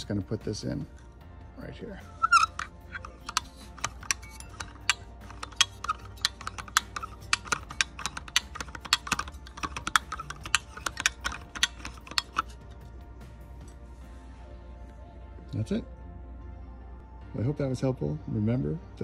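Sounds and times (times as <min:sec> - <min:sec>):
small metal clicks and taps: 0:02.2 - 0:12.8.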